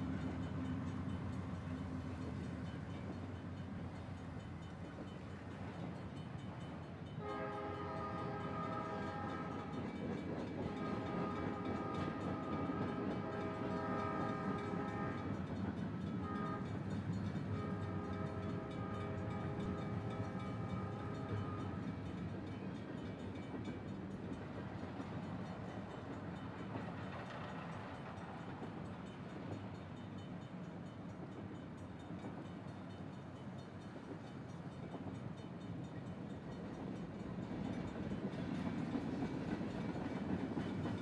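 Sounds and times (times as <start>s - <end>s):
moving train rumbling: 0.0s - 41.0s
train horn blasts: 7.1s - 9.8s, 10.6s - 15.4s, 16.2s - 22.1s.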